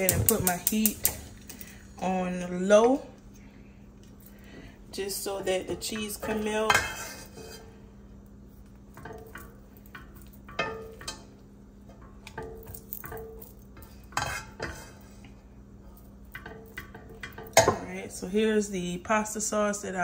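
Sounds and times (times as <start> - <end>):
faint steady hum: 0.0 - 20.0
spoon scraping and knocking pot: 5.7 - 7.8, 9.0 - 15.1.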